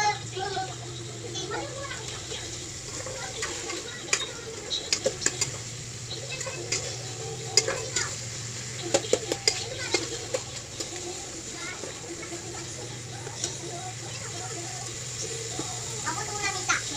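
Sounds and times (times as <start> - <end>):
faint sizzle: 0.0 - 16.9
steady low hum: 0.0 - 16.9
utensil knocking and scraping pan: 8.8 - 11.1.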